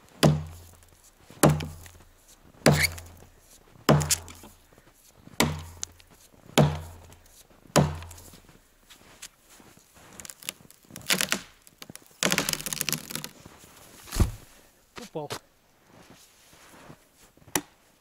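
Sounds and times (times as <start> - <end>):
axe chopping into tree trunk: 0.2 - 0.8, 1.4 - 2.0, 2.6 - 3.2, 3.9 - 4.6, 5.4 - 6.0, 6.6 - 7.2, 7.8 - 8.4, 10.4 - 13.3, 14.1 - 14.4.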